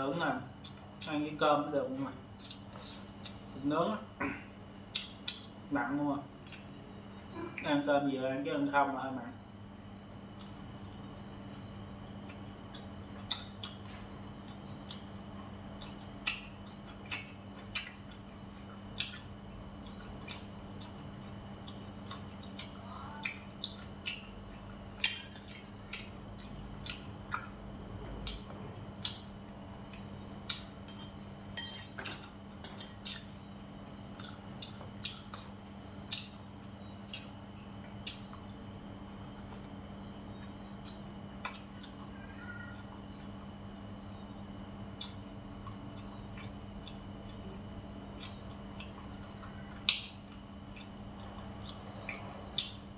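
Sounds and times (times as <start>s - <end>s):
steady low hum: 0.0s - 52.9s
utensils clinking on ceramic bowls: 30.9s - 33.0s.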